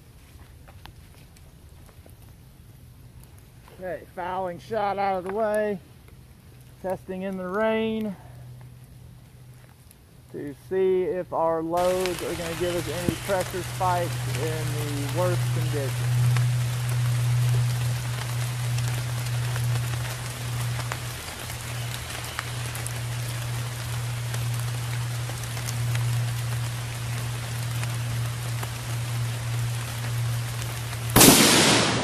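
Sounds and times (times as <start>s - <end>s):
low hum: 0.0s - 32.0s
steady rain falling: 0.0s - 32.0s
rifle shot: 31.2s - 32.0s.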